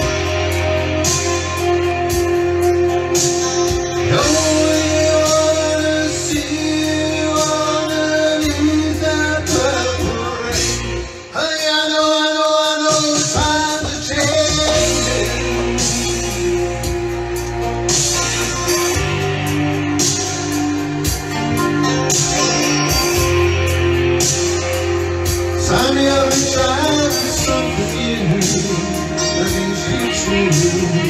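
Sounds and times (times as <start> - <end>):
backing music: 0.0 - 31.0
man singing into microphone: 4.0 - 17.0, 25.5 - 31.0.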